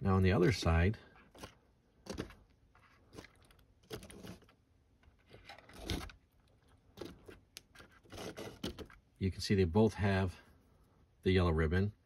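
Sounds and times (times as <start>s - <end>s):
plastic model scrapes and rustles: 1.1s - 9.0s.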